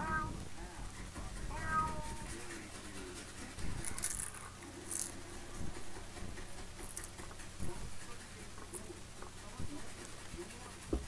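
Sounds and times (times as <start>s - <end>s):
cartoon cat meowing: 0.0s - 0.4s, 1.5s - 2.2s
hissy scratching sounds: 0.0s - 11.0s.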